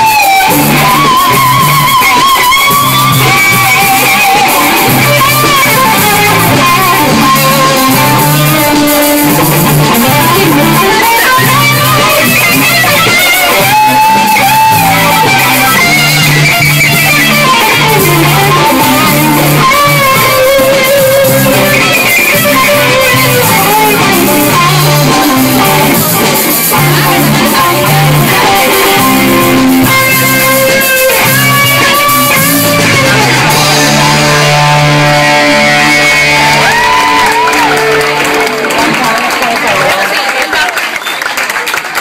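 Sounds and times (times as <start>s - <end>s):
electric guitar bending notes: 0.0s - 39.7s
rock band playing loudly: 0.0s - 42.0s.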